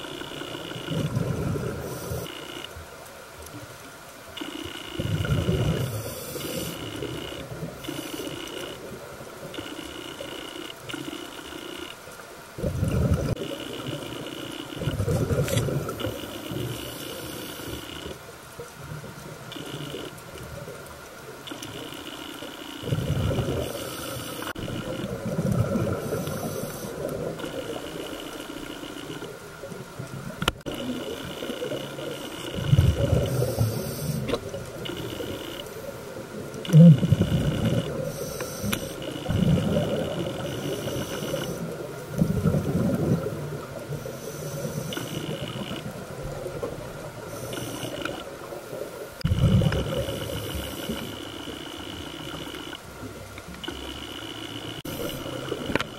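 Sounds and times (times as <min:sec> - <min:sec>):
thin high whine: 0:36.6 - 0:41.8, 0:49.2 - 0:52.8.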